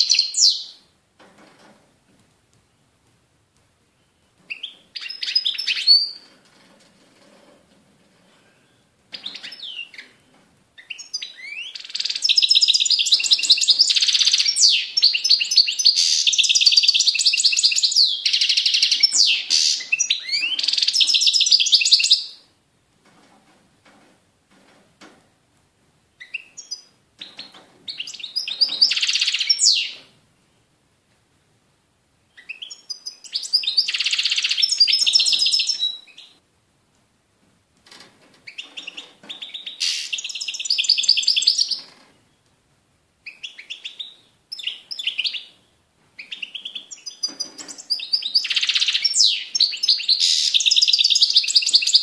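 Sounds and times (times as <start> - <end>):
finch twittering and trilling: 26.2 - 30.0, 32.4 - 36.3.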